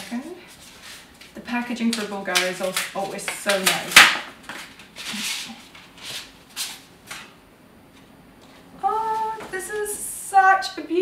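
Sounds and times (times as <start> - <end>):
paper rustling and sliding: 0.0 - 1.4, 4.4 - 7.3.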